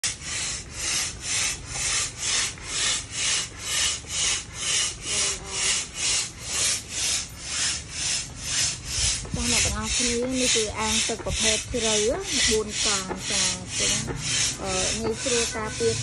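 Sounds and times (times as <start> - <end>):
manual air pump hissing: 0.0 - 16.0.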